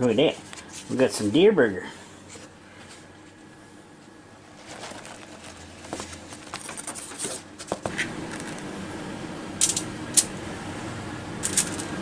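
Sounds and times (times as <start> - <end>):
taco shells clicking on tray: 11.4 - 11.9.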